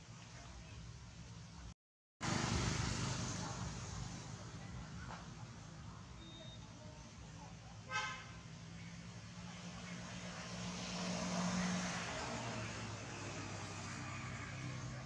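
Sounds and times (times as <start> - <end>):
vehicle engine passing: 2.2 - 6.0, 8.7 - 15.0.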